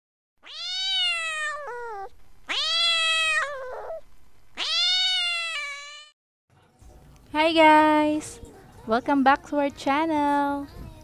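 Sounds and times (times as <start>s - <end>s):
cat meowing: 0.4s - 4.0s, 4.6s - 6.1s.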